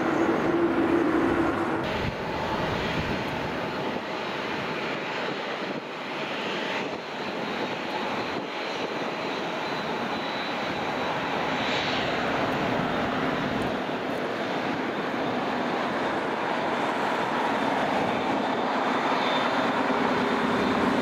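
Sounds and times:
faint high engine whine: 0.0 - 21.0
jet engines rushing: 0.0 - 21.0.

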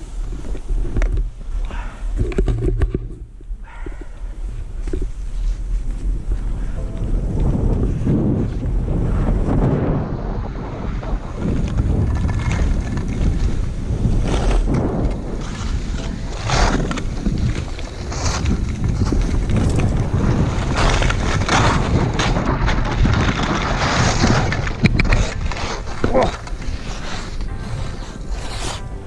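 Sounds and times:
wind buffeting microphone: 0.0 - 29.0
ski edges scraping snow: 11.0 - 29.0.

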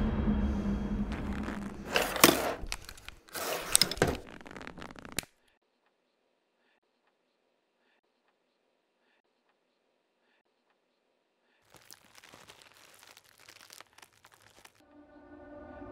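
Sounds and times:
crackling tearing noise: 1.1 - 5.4, 11.7 - 14.8.

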